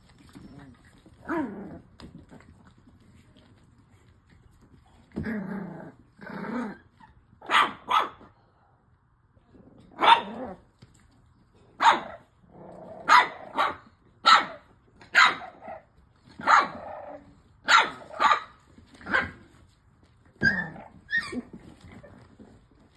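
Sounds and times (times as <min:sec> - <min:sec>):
puppies growling: 0:00.0 - 0:07.2, 0:09.5 - 0:10.8, 0:12.4 - 0:13.6, 0:15.5 - 0:18.2, 0:20.4 - 0:22.9
puppies barking: 0:13.0 - 0:15.6, 0:17.6 - 0:19.4.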